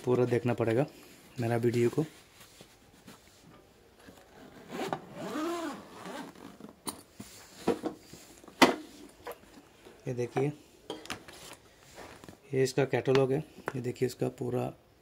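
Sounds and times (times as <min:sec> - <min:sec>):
zipper rasping open: 0:04.0 - 0:06.9.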